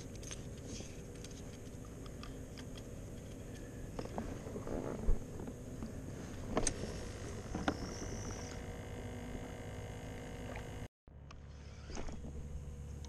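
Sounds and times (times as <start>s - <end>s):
fishing rod handling rumble: 0.0s - 8.6s.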